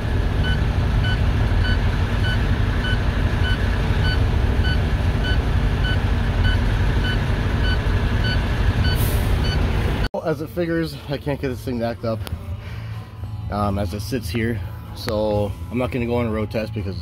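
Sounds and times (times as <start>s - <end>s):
diesel truck engine idling: 0.0s - 15.7s
short electronic beeps: 0.4s - 9.7s.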